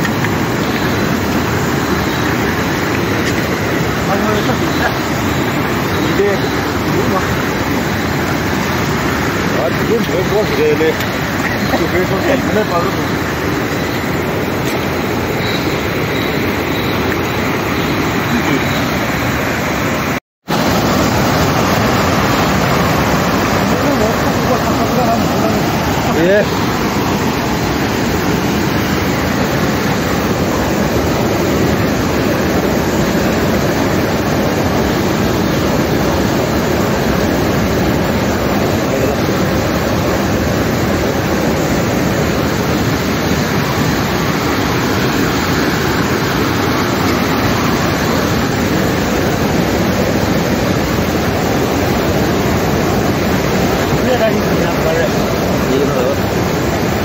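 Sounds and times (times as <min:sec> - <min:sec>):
river water rushing through rapids: 0:00.0 - 0:57.0.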